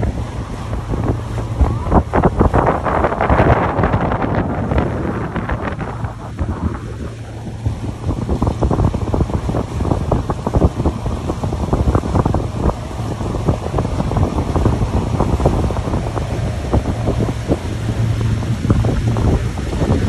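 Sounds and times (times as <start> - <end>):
boat engine drone: 0.0 - 20.0
water splashing: 0.0 - 20.0
wind buffeting microphone: 0.0 - 20.0.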